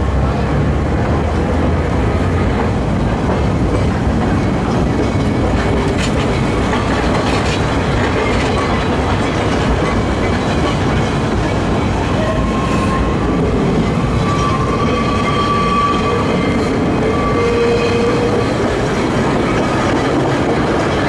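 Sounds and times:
tram wheel-and-rail rumble: 0:00.0 - 0:21.0.

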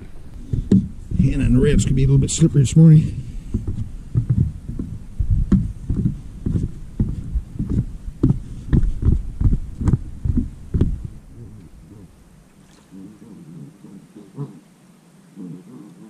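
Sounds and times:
footsteps on wooden stairs: 0:00.0 - 0:11.8.

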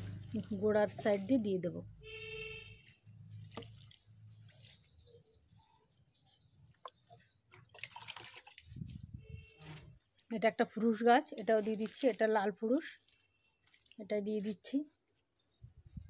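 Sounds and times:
liquid trickling onto soil: 0:00.0 - 0:05.2, 0:06.6 - 0:10.2, 0:10.9 - 0:15.4
birds chirping: 0:00.3 - 0:09.6.

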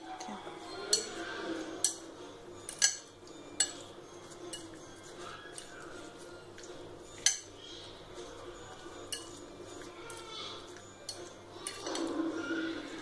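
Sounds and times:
spoon clinking on glass: 0:02.6 - 0:05.8, 0:09.0 - 0:12.0.

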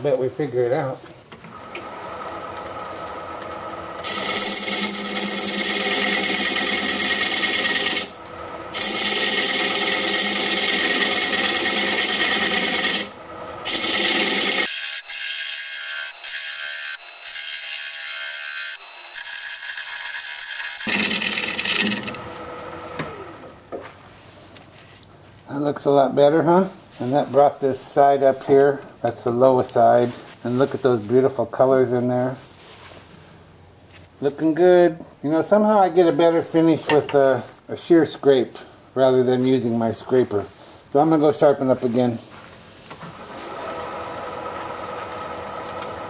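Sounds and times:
wood lathe cutting hiss: 0:01.7 - 0:23.5, 0:43.2 - 0:46.0.

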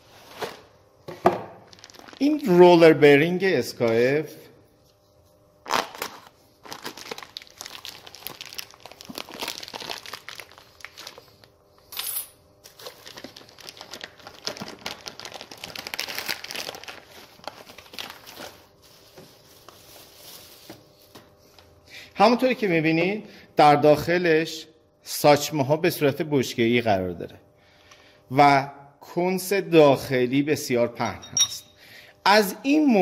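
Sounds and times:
plastic wrapping crinkling: 0:01.6 - 0:02.6, 0:05.6 - 0:11.6, 0:12.6 - 0:21.2.

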